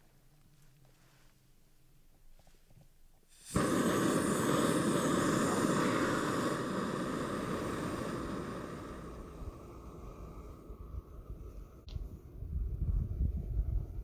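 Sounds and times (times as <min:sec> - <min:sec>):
burner igniting with a pop: 0:03.3 - 0:09.7
gas hissing: 0:03.3 - 0:12.3
stove burner rushing: 0:03.4 - 0:09.6.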